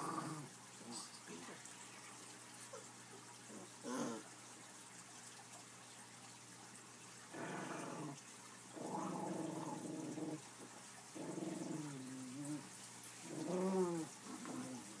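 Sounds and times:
puppies play-growling: 0.0s - 0.6s, 2.6s - 4.4s, 7.3s - 15.0s.

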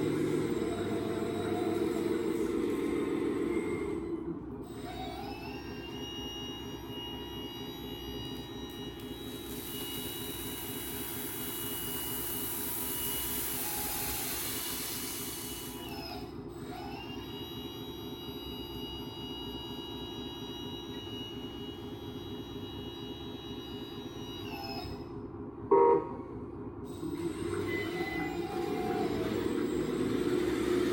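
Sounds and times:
hydraulic pump running: 0.0s - 4.0s, 8.7s - 16.0s, 26.9s - 30.9s.

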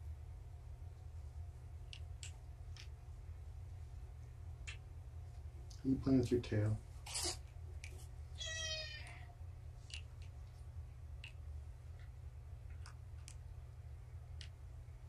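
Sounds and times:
steady low hum: 0.0s - 15.0s
kitten meowing: 8.4s - 9.3s
faint clicks: 14.3s - 14.6s.

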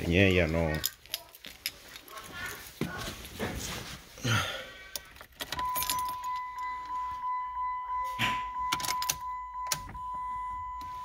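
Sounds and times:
car keys jangling: 4.9s - 11.0s
electronic warning chime: 5.6s - 11.0s.

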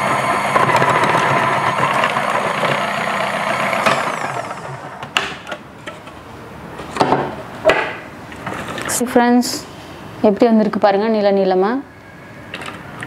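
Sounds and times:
food processor motor whine: 0.0s - 5.2s.

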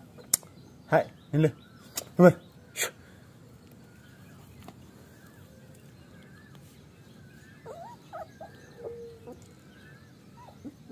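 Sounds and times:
puppy yipping: 7.6s - 9.4s
puppy whining: 7.6s - 9.6s, 10.3s - 10.9s.

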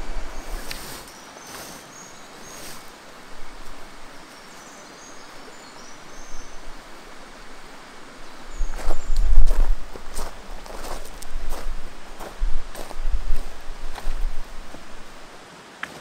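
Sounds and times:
river flowing over stones: 0.0s - 16.0s
faint high bird chirps: 0.3s - 2.9s, 4.2s - 6.8s, 8.2s - 9.7s.

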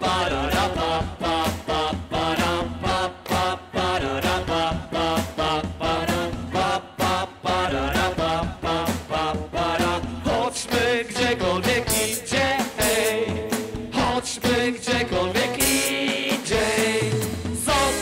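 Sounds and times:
man singing: 0.0s - 18.0s
live band music: 7.9s - 18.0s.

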